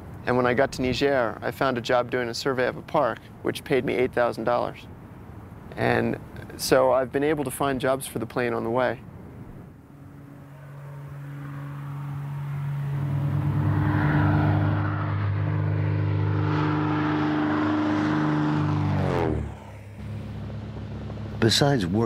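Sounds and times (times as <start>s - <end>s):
propeller airplane engine: 9.2s - 22.0s.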